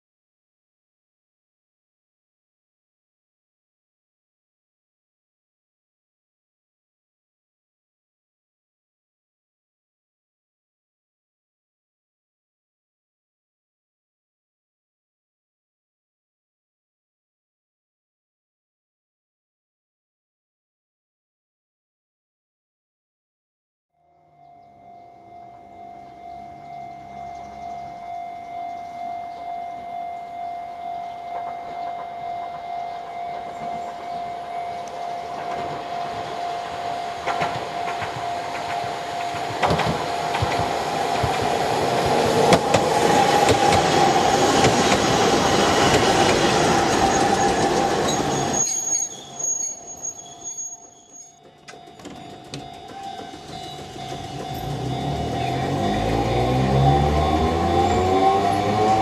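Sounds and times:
steady high tone: 0:24.0 - 0:59.0
train wheels squealing and clattering: 0:35.2 - 0:59.0.

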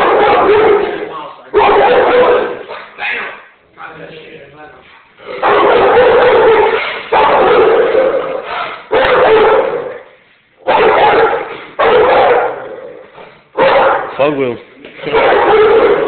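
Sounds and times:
dog barking: 0:00.0 - 0:03.4, 0:05.3 - 0:13.0, 0:13.6 - 0:14.1, 0:15.0 - 0:16.0.

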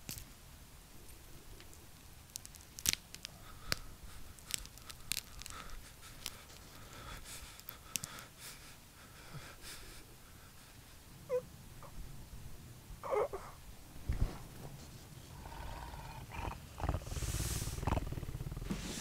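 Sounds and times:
clicks and crackles: 0:00.0 - 0:00.4, 0:01.1 - 0:06.8, 0:07.4 - 0:08.3
low hiss: 0:00.0 - 0:19.0
sharp snaps: 0:01.6 - 0:06.7.

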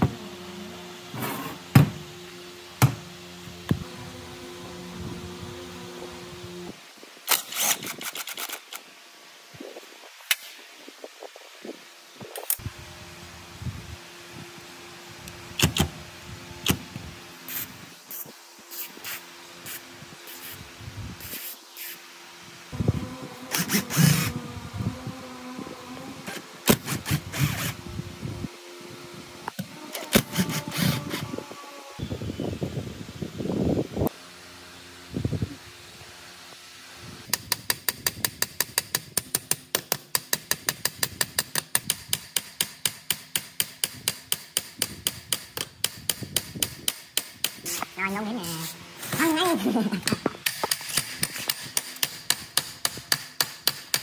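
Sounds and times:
steady low hum: 0:00.0 - 0:07.3, 0:12.2 - 0:37.3.

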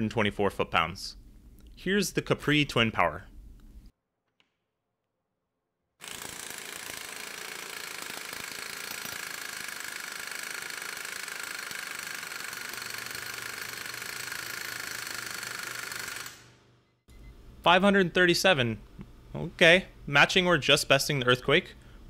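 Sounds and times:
pneumatic impact wrench hammering: 0:06.0 - 0:16.6.

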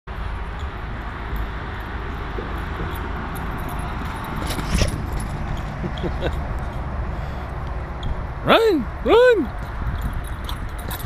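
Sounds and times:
outdoor background rumble: 0:00.1 - 0:11.0
metallic jingling clicks: 0:00.5 - 0:07.0, 0:09.4 - 0:11.0.

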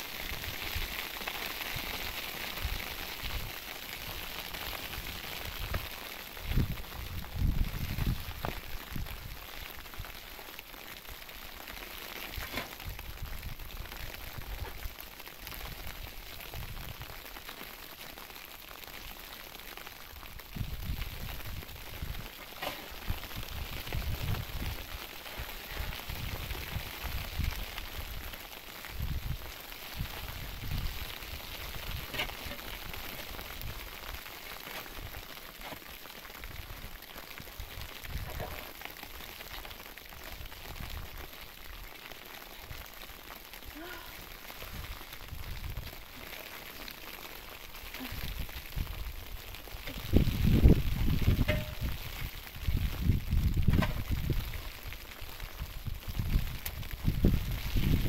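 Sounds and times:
rain hissing: 0:00.0 - 0:58.0
wind buffeting microphone: 0:05.5 - 0:09.4, 0:23.0 - 0:24.9, 0:49.9 - 0:54.6, 0:55.6 - 0:58.0.

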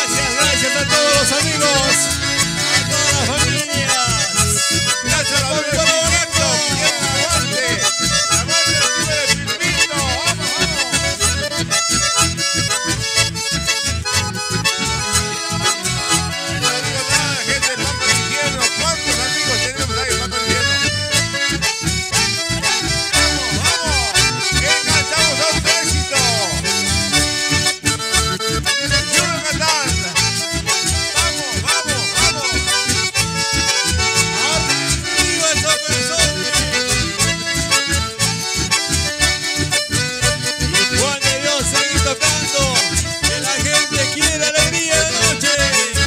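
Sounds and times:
bandoneon: 0:00.0 - 0:46.0
button accordions: 0:00.0 - 0:46.0
electric bass: 0:00.0 - 0:46.0
strummed acoustic guitar: 0:00.0 - 0:46.0.

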